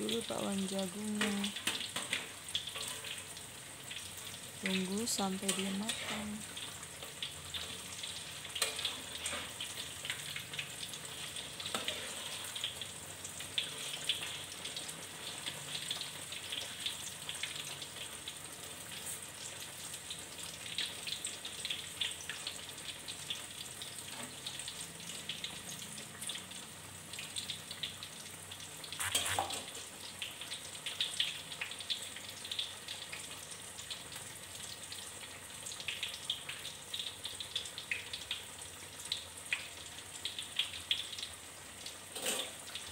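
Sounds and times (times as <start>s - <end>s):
fritters sizzling in hot oil: 0.0s - 42.9s
metal spatula in pan: 1.2s - 4.0s, 5.3s - 6.7s, 7.5s - 10.4s, 11.1s - 12.9s, 29.0s - 29.8s, 42.1s - 42.7s.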